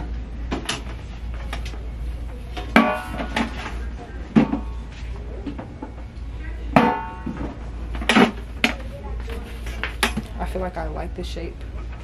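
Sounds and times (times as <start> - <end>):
steady low hum: 0.0 - 12.0
hard goods knocking and clanking: 2.6 - 4.8, 6.7 - 8.9.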